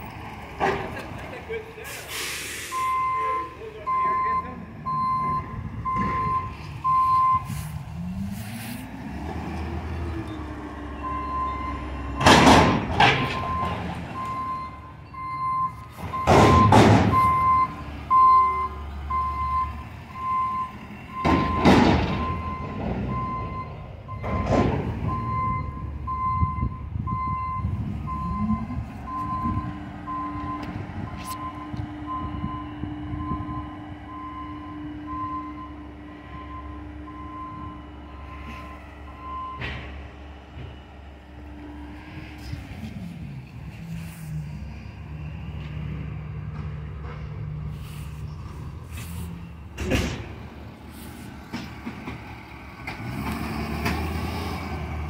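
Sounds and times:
truck engine hum: 0.0 - 55.0
truck backup alarm beeping: 2.1 - 8.2, 9.3 - 42.6
loud bangs and clanks: 12.2 - 14.2, 16.0 - 17.4, 21.2 - 23.2, 24.2 - 25.1, 49.7 - 50.6.

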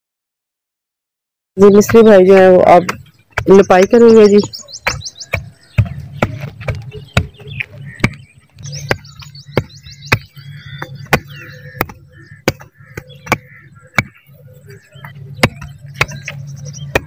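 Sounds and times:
birds chirping: 1.6 - 17.0
sharp knocks: 4.8 - 14.3, 15.0 - 17.0.

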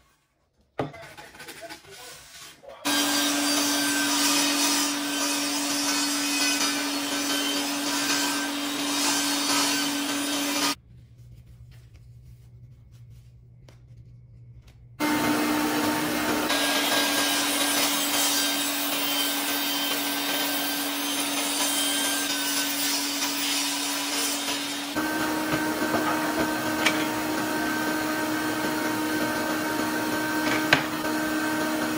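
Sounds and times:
table saw cutting wood: 2.8 - 10.8, 15.0 - 31.9.

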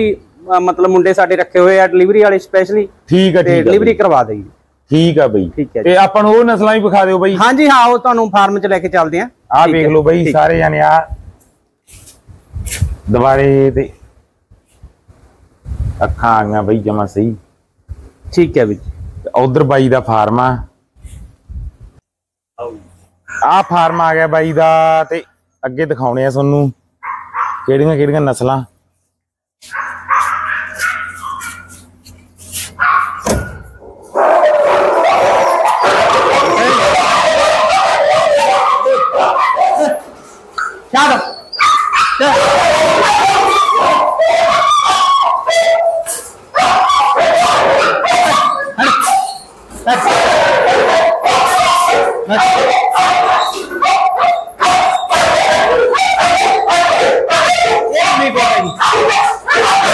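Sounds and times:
dogs barking: 22.7 - 25.2, 27.0 - 28.0, 29.6 - 59.9.

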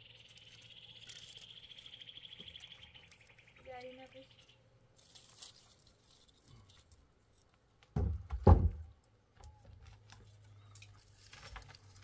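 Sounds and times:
dull thud: 7.9 - 8.9
loud thud: 8.0 - 8.9.

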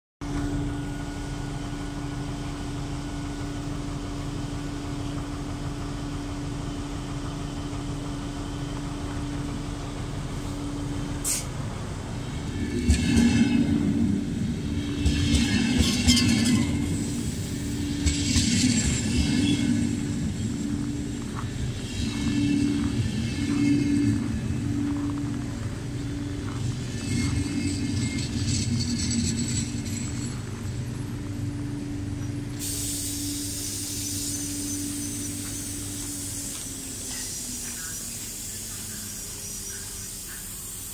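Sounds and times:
diesel locomotive engine droning: 0.2 - 40.9
train wheels rumbling on rail: 0.2 - 40.9
train brakes screeching: 11.2 - 11.6, 12.4 - 30.8, 32.5 - 40.9.

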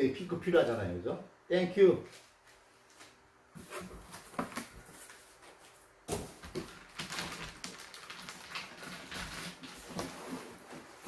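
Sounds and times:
plastic wrap crinkling: 6.1 - 11.0.

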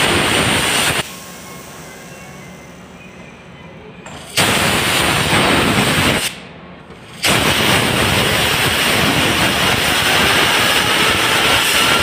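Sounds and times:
compressed air blow gun hissing: 7.2 - 12.0.

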